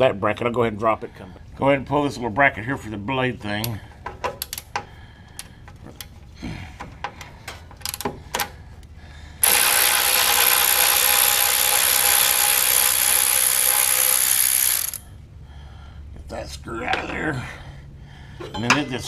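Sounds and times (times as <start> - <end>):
power driver running: 9.4 - 15.0.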